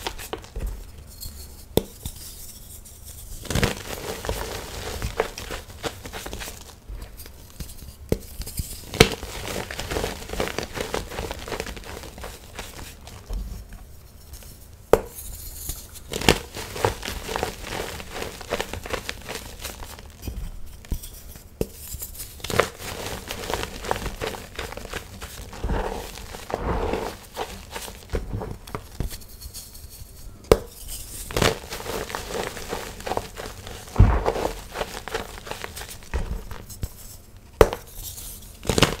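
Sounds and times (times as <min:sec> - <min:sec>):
hands crumbling chalk: 0:03.5 - 0:13.4, 0:16.1 - 0:20.1, 0:21.7 - 0:29.7, 0:30.5 - 0:37.0.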